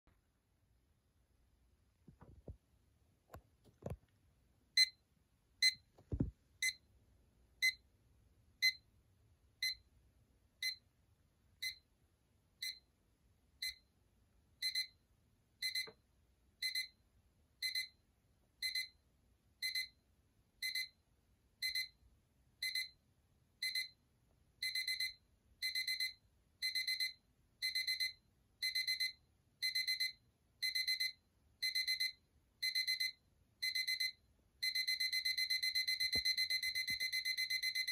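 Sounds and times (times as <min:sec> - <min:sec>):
alarm clock beeping: 0:05.6 - 0:05.8, 0:09.6 - 0:09.8, 0:13.6 - 0:13.8, 0:14.6 - 0:15.0, 0:15.6 - 0:15.9, 0:16.6 - 0:17.0, 0:17.6 - 0:18.0, 0:18.6 - 0:19.0, 0:19.6 - 0:20.0, 0:20.6 - 0:21.0, 0:21.6 - 0:22.0, 0:22.6 - 0:23.0, 0:23.6 - 0:24.0, 0:24.6 - 0:37.9.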